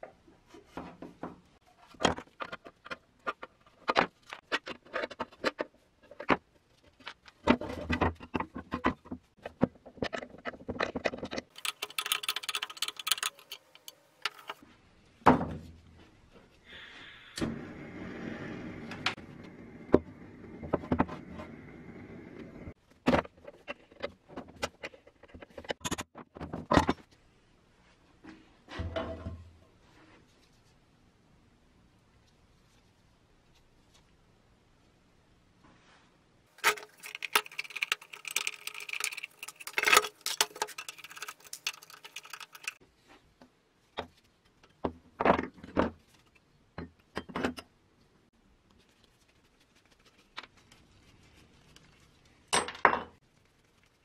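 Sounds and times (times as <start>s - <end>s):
metal parts clicking and knocking: 1.9s - 14.6s, 36.6s - 42.8s.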